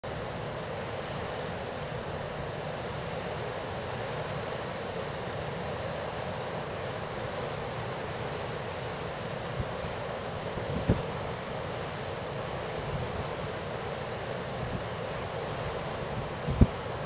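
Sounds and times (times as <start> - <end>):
wind buffeting microphone: 9.6 - 11.2, 16.1 - 16.9.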